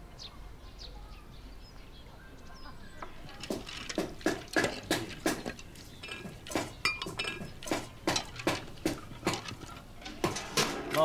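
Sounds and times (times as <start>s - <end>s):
ceramic dishes clinking: 4.4s - 11.0s.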